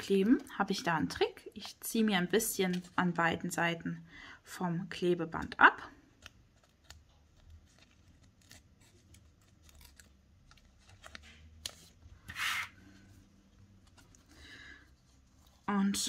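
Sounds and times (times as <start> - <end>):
paper crinkling and ticking: 6.1 - 12.0
paper rustle: 6.2 - 13.0.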